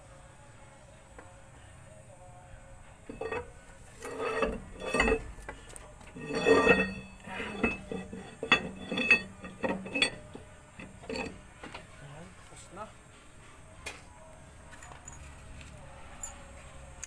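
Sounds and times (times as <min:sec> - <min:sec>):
metal clinks and clanks: 0:03.1 - 0:11.4, 0:14.7 - 0:15.5.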